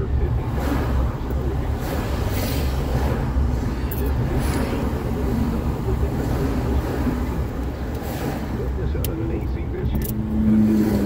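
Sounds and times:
car engine and tyres rumbling: 0:00.0 - 0:11.0
traffic whooshing by: 0:00.0 - 0:11.0.

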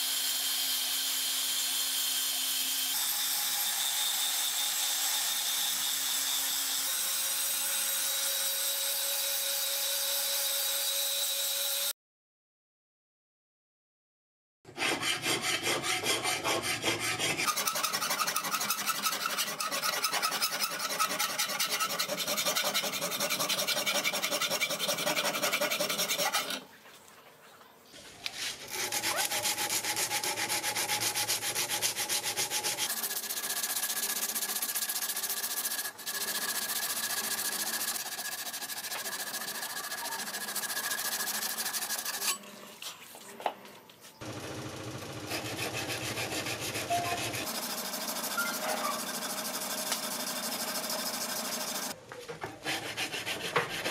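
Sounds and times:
sandpaper scraping metal blade: 0:14.7 - 0:26.6, 0:28.3 - 0:42.4, 0:45.3 - 0:52.0, 0:52.7 - 0:53.9.

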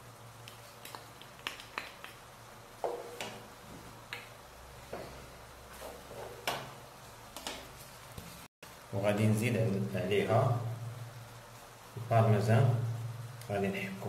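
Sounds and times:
wooden spoon tapping and stirring: 0:00.4 - 0:06.7
low steady hum: 0:02.2 - 0:14.0
sauce simmering in a frying pan: 0:06.7 - 0:14.0.

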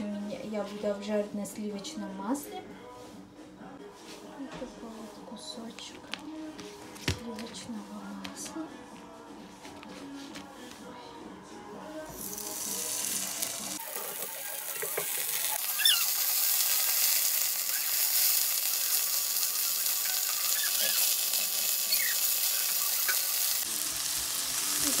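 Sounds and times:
butter sizzling in frying pan: 0:12.1 - 0:25.0.

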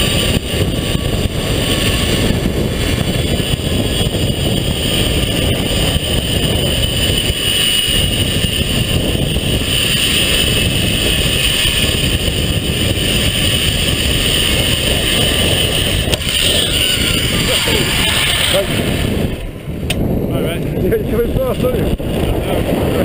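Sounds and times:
pulley wheels whining on cable: 0:00.0 - 0:23.0
wind rushing over microphone: 0:00.0 - 0:23.0.

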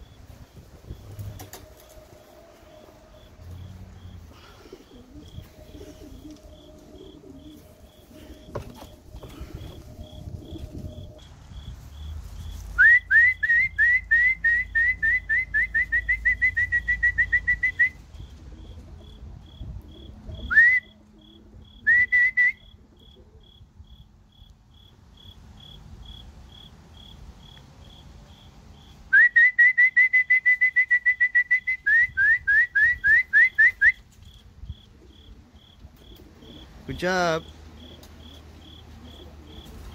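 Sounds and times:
cricket chirping: 0:00.0 - 0:39.9
person whistling: 0:12.8 - 0:18.0, 0:20.5 - 0:20.9, 0:21.9 - 0:22.6, 0:29.1 - 0:34.0.

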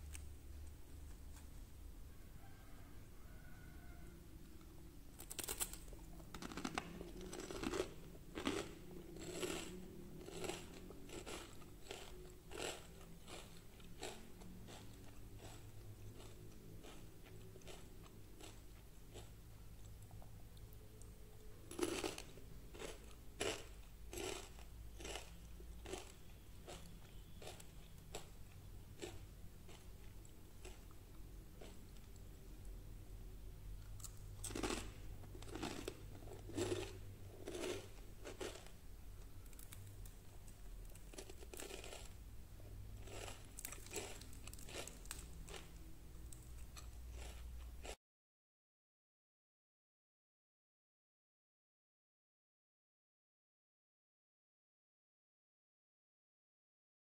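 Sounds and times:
crispy potato pancake crunching: 0:05.2 - 0:20.0, 0:21.7 - 0:31.0, 0:33.8 - 0:38.8, 0:39.4 - 0:42.2, 0:43.0 - 0:47.5.

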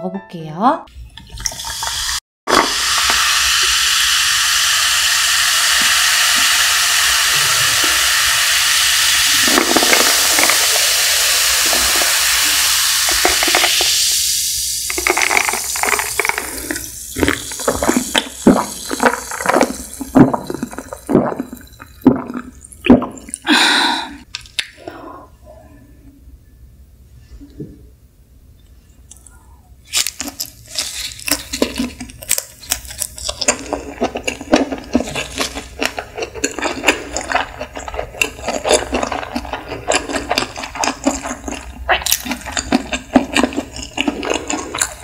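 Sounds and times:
soda fizzing pour: 0:01.2 - 0:23.5
soda and ice crackling: 0:01.2 - 0:23.6, 0:29.9 - 0:45.0.

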